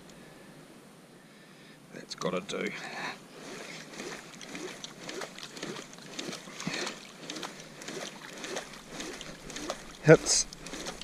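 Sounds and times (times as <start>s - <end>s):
water lapping against kayak hull: 3.3s - 11.0s.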